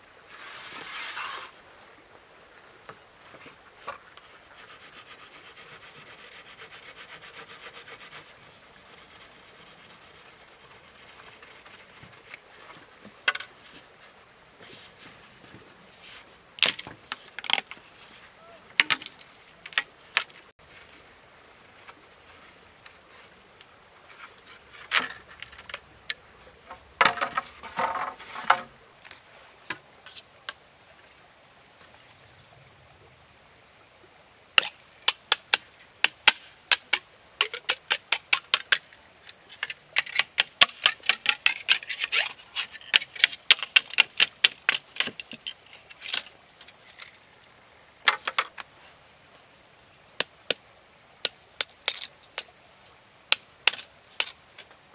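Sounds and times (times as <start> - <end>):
bamboo poles being chopped: 16.6 - 17.8, 18.8 - 20.3, 27.0 - 28.7, 34.6 - 38.8, 39.6 - 46.3, 48.0 - 48.6, 53.3 - 54.4.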